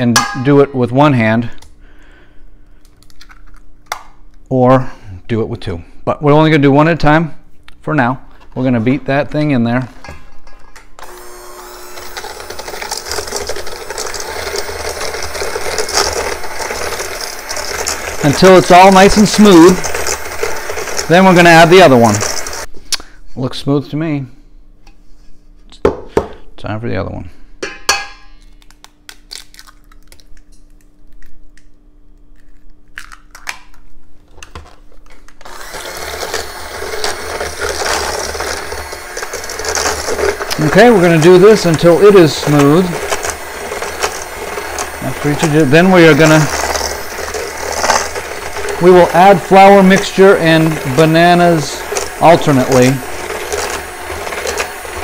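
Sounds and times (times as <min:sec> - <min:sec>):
electric hand mixer in metal bowl: 0:11.0 - 0:22.7, 0:35.4 - 0:55.0.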